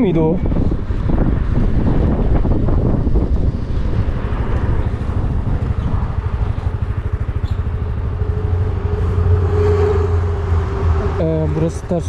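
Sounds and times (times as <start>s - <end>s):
wind buffeting microphone: 0.0s - 12.0s
scooter engine rumbling: 0.4s - 12.0s
steady mid-pitched tone: 8.0s - 12.0s.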